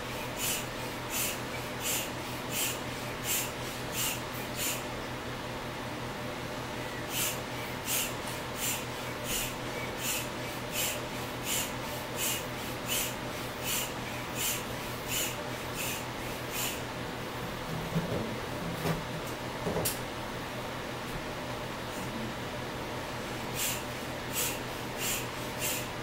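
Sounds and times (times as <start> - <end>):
hand pump air puffs: 0.4 - 4.8, 7.1 - 16.8, 23.6 - 25.9.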